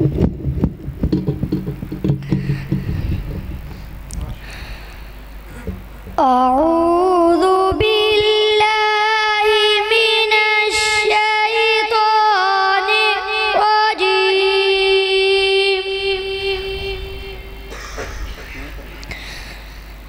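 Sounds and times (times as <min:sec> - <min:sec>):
boy chanting melodically: 0:05.5 - 0:18.8.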